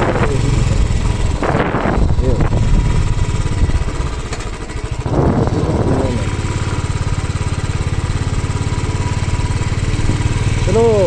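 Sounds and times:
vehicle engine running: 0.0s - 11.0s
person speaking: 5.3s - 6.4s, 10.6s - 11.0s.

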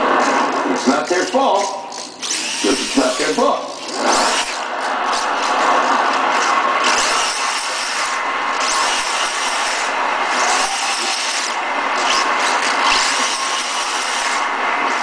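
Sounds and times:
small electric motor whining: 1.6s - 15.0s
gear and tyre noise: 3.7s - 15.0s.

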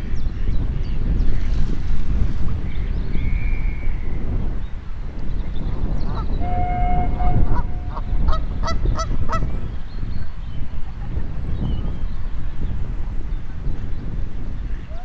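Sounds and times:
wind rumble on microphone: 0.0s - 15.0s
geese honking: 6.4s - 9.5s.

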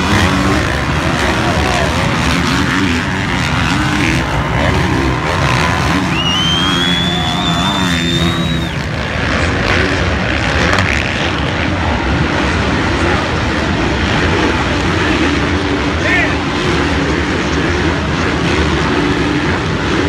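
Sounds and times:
dirt bike engines revving: 0.0s - 20.0s
distant engine noise wash: 0.0s - 20.0s
high engine whine: 0.0s - 20.0s.

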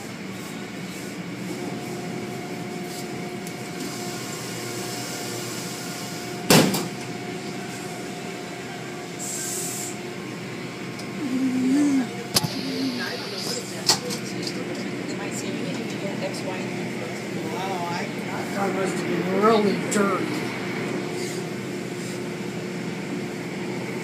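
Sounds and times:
car wash machinery hum: 0.0s - 24.0s.

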